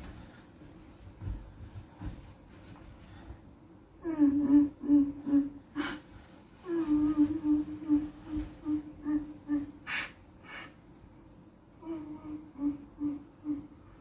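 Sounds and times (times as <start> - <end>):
sharp sniffing breaths: 9.8 - 10.8.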